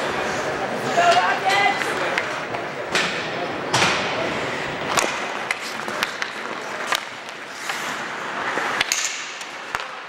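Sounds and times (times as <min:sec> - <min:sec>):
rink background noise: 0:00.0 - 0:10.0
hockey sticks clacking on puck: 0:00.8 - 0:04.1, 0:04.8 - 0:10.0
skates scraping on ice: 0:04.2 - 0:10.0.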